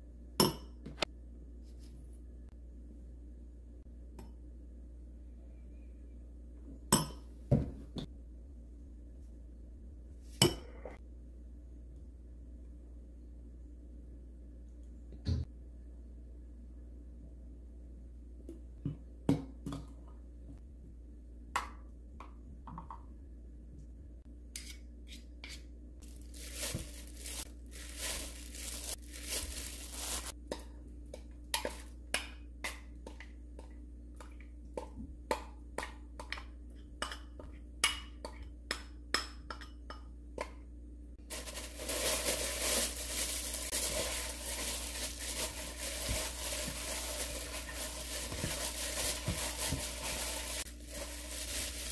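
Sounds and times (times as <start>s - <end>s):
gloved hand mixing meat: 26.1s - 30.4s, 41.3s - 51.9s.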